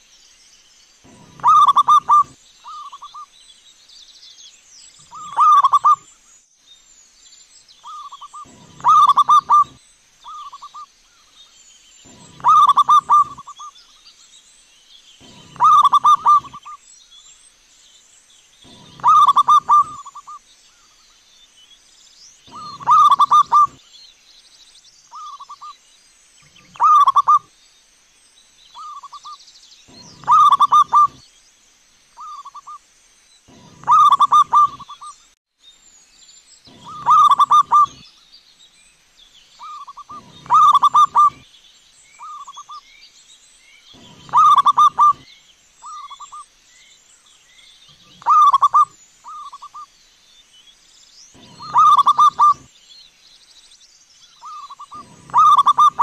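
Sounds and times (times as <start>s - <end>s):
dove cooing: 1.1s - 3.1s, 5.1s - 6.0s, 7.9s - 10.8s, 12.1s - 13.6s, 15.2s - 16.8s, 18.7s - 20.4s, 22.5s - 23.8s, 26.7s - 27.4s, 29.9s - 31.2s, 33.5s - 35.0s, 36.7s - 38.0s, 39.6s - 41.4s, 44.0s - 45.2s, 48.1s - 49.7s, 51.4s - 52.7s, 54.4s - 56.0s.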